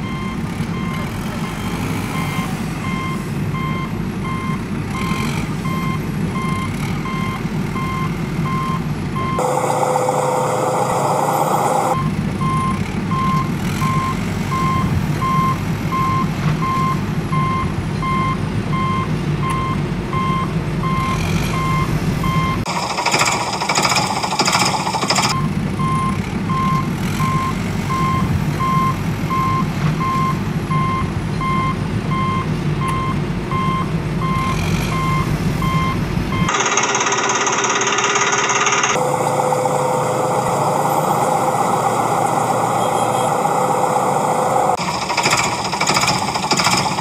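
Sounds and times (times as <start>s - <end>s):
reversing beeper beeps: 0.0s - 22.6s, 24.0s - 36.8s, 38.9s - 44.8s
heavy vehicle engine rumble: 0.0s - 36.6s, 39.0s - 47.0s
loud high noisy sound: 9.4s - 12.0s, 22.7s - 25.4s, 36.5s - 47.0s.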